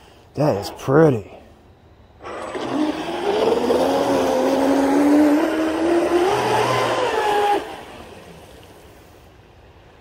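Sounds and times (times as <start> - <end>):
model boat motor whining: 2.2 - 9.0.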